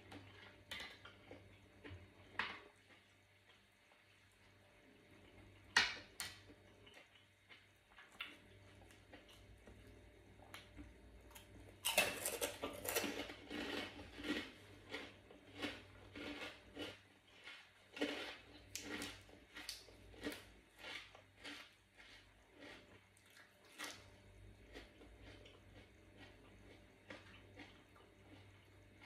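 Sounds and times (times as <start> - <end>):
wet crackly chewing: 6.3 - 29.0.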